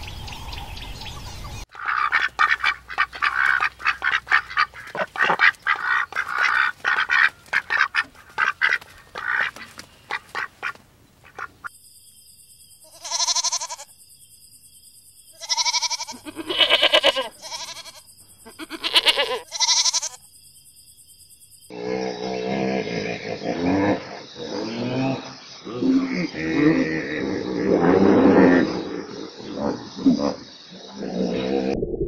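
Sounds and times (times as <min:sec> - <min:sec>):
ducks quacking: 0:01.7 - 0:11.7
goats bleating: 0:12.9 - 0:13.8, 0:15.4 - 0:20.2.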